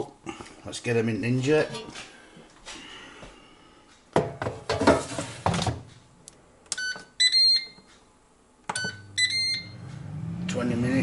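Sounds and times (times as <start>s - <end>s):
drawer clattering: 4.3s - 5.9s
air fryer beeps: 6.8s - 7.9s, 8.7s - 10.4s.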